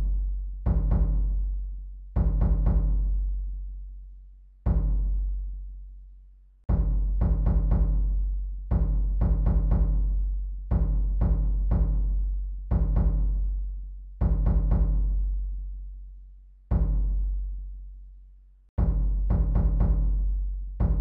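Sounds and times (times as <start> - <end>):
deep drum beats booming: 0.0 - 1.4, 2.2 - 3.2, 4.7 - 5.2, 6.7 - 13.5, 14.2 - 15.3, 16.7 - 17.3, 18.8 - 21.0.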